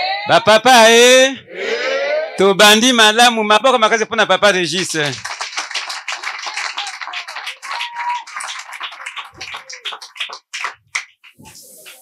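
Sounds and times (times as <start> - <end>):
people clapping: 3.9 - 12.0.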